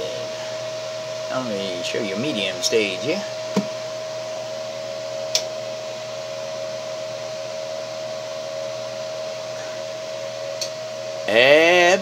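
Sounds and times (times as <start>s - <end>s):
cooling fan whooshing with whine: 0.0s - 12.0s
small click: 5.3s - 5.5s, 10.6s - 10.8s.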